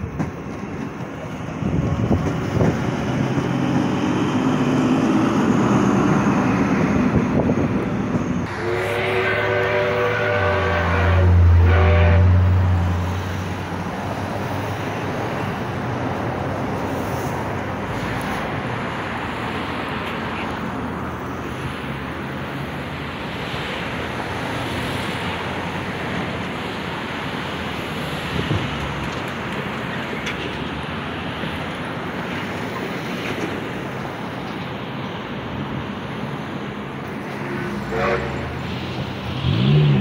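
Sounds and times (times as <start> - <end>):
traffic: 0.0 - 40.0
wind: 0.0 - 40.0
horn blasts: 8.5 - 12.6, 37.4 - 38.6.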